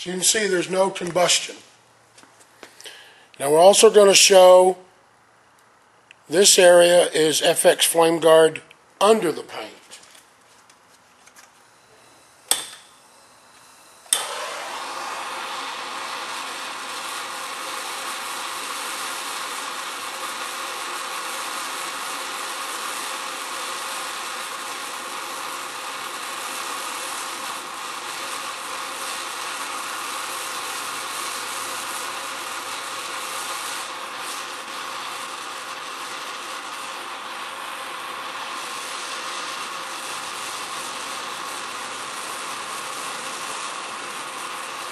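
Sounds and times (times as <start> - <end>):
blowtorch flame hissing: 6.3 - 8.0, 11.8 - 44.9
blowtorch igniter clicks: 12.4 - 13.0, 13.6 - 44.9.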